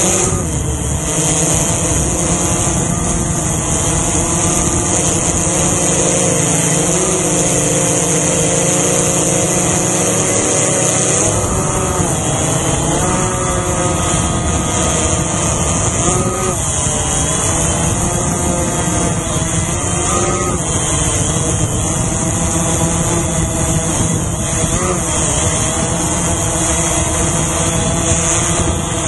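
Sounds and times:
drone propellers whining: 0.0 - 29.0.

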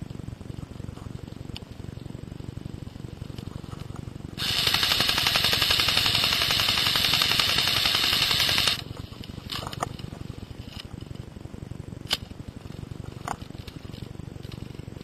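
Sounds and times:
airsoft gun full-auto burst: 4.4 - 8.9.

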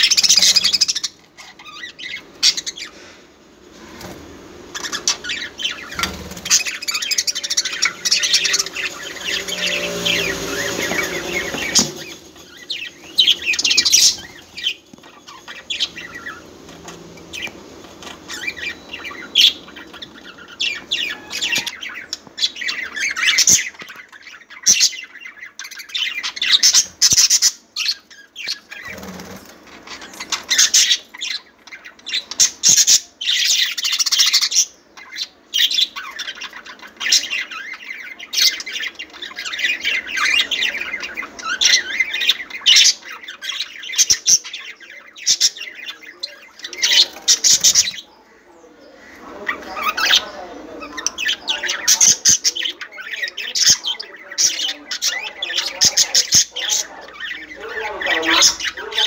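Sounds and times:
budgerigars chirping: 0.0 - 3.1, 3.8 - 59.0.

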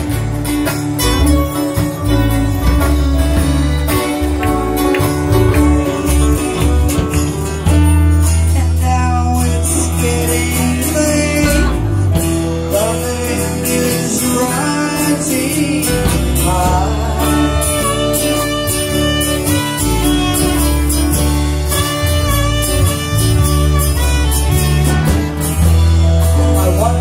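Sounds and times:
country band playing: 0.0 - 27.0
person singing: 1.2 - 19.5.

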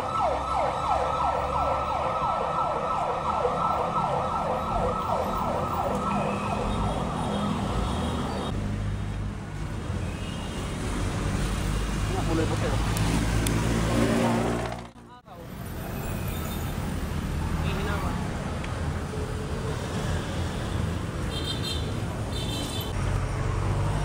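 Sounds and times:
emergency siren fast yelp: 0.0 - 7.6
road traffic rumble: 0.0 - 24.0.

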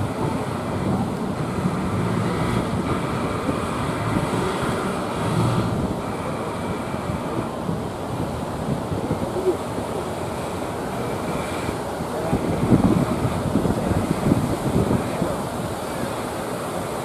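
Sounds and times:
boat engines droning: 0.0 - 17.0
surf breaking: 0.0 - 17.0
wind buffeting microphone: 0.0 - 17.0.

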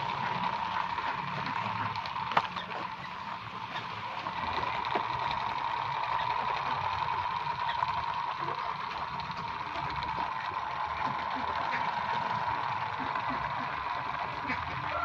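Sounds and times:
toy helicopter motor whirring: 0.0 - 15.0.

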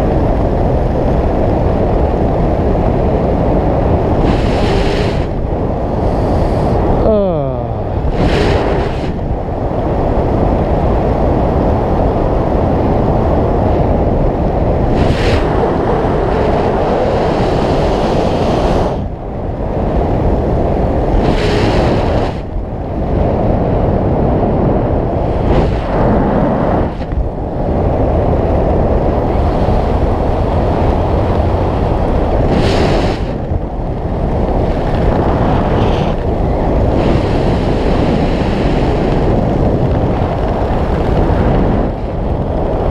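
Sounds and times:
wind rushing over microphone: 0.0 - 42.9.

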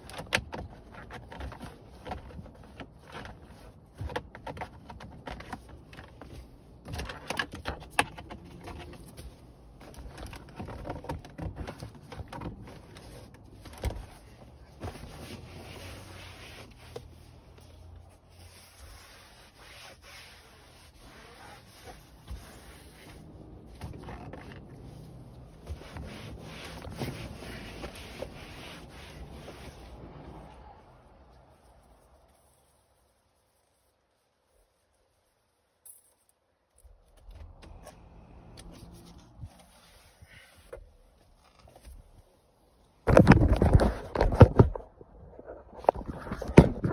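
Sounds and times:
handling clicks and knocks: 0.0 - 15.1
cloth wiping leather seats: 12.6 - 34.6, 38.8 - 40.7.

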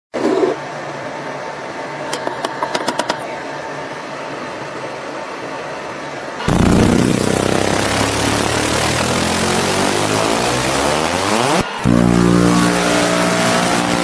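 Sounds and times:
faint high whine: 3.3 - 14.0
laser cleaning machine humming: 6.4 - 14.0.

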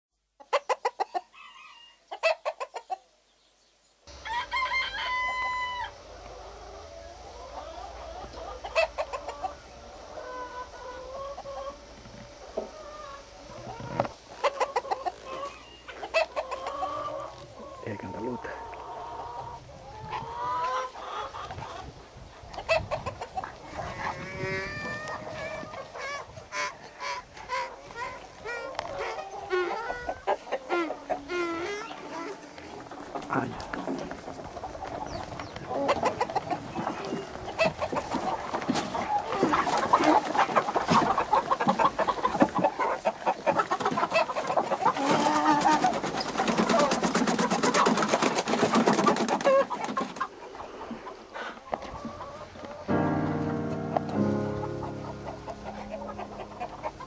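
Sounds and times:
chicken clucking: 0.4 - 3.1, 4.1 - 57.0
rooster crowing: 4.1 - 6.0.

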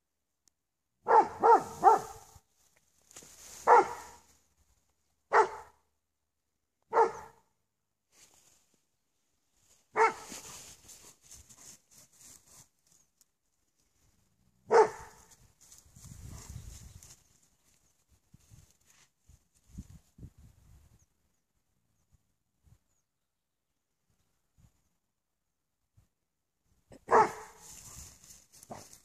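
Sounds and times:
dog barking: 1.0 - 2.3, 3.6 - 4.2, 5.3 - 5.8, 6.9 - 7.4, 9.9 - 10.4, 14.7 - 15.3, 27.0 - 27.6.

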